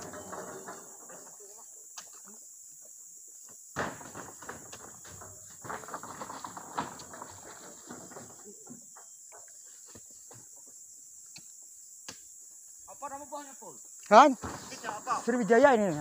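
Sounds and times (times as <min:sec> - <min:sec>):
fruit bunches knocking and thudding: 0:03.7 - 0:10.5, 0:14.3 - 0:15.0.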